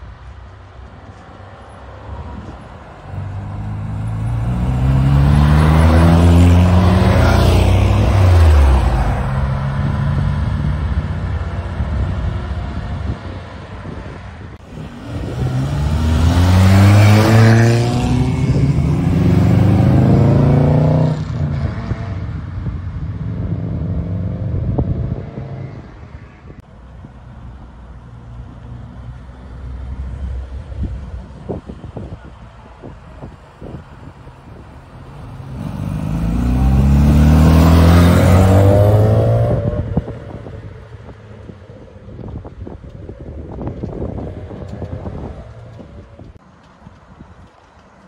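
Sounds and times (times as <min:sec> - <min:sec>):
car engines running: 0:00.0 - 0:48.0
car engine revving: 0:03.1 - 0:11.9, 0:14.6 - 0:22.3, 0:35.0 - 0:40.6.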